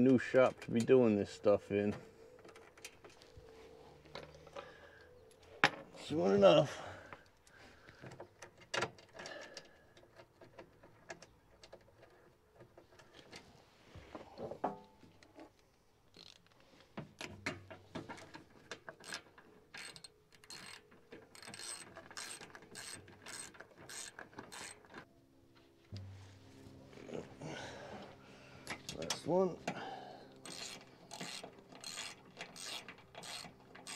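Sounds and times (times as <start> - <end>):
hand ratchet clicking: 19.0 - 25.0, 30.4 - 33.9.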